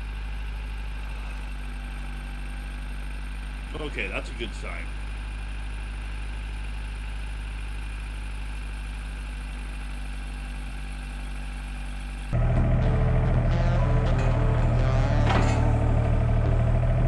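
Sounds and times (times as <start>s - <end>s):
car engine idling: 0.0s - 17.0s
louder engine sound: 3.5s - 17.0s.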